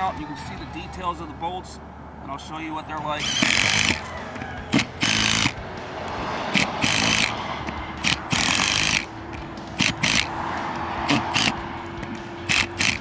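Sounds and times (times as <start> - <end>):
impact driver driving bolts: 3.2 - 4.0, 4.7 - 5.6, 6.5 - 9.1, 9.8 - 10.3, 11.0 - 13.0.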